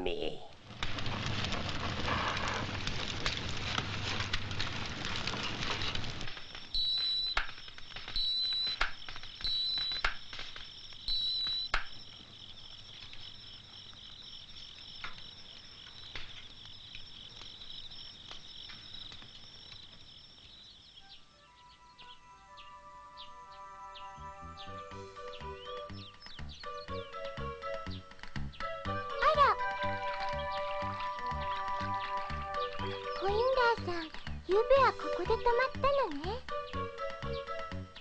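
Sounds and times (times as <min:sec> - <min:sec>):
campfire crackling: 0:00.0 - 0:21.4, 0:22.4 - 0:38.0
high insect trill: 0:05.4 - 0:26.4
short insect chirps: 0:05.4 - 0:27.0.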